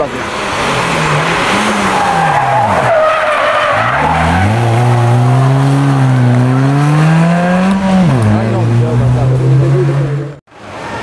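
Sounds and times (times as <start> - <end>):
tyres squealing: 0.2 - 8.4
rally car engine accelerating: 3.7 - 10.4.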